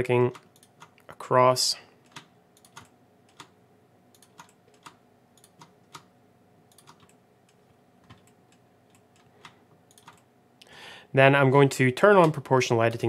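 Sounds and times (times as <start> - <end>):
computer mouse clicks: 2.0 - 3.5, 4.1 - 6.1, 6.7 - 10.3.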